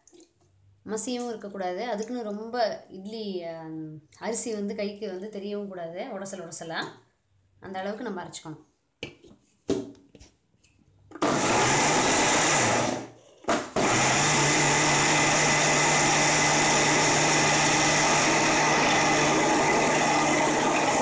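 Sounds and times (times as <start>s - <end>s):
mixer grinder grinding rice: 11.2s - 21.0s.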